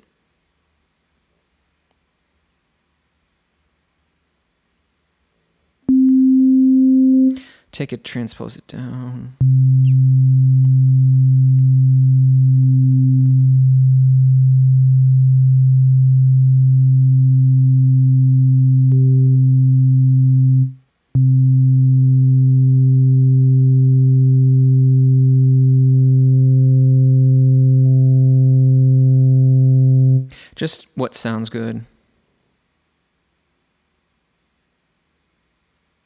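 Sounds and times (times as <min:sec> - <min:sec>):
sustained synthesizer tone: 0:05.9 - 0:07.4, 0:09.4 - 0:30.3.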